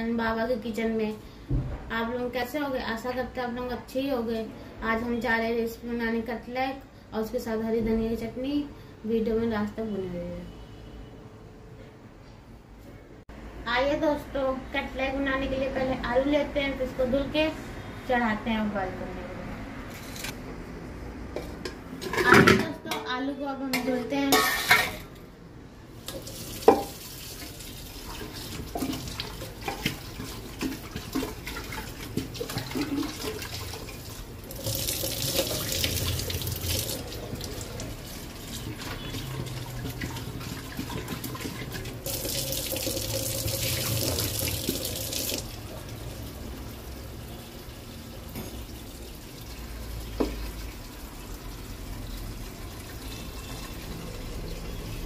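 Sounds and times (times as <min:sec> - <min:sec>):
tap water running into a pot: 0:26.0 - 0:54.6.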